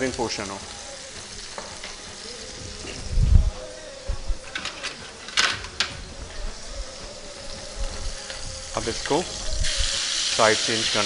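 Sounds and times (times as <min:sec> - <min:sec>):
utensils clicking and clinking: 0:04.4 - 0:06.2
utensils knocking: 0:04.5 - 0:06.2.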